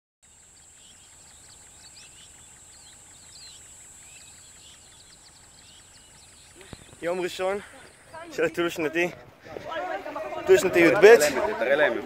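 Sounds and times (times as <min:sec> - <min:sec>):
birds chirping and trilling: 0:00.2 - 0:09.1
steady high-pitched whine: 0:00.2 - 0:12.0.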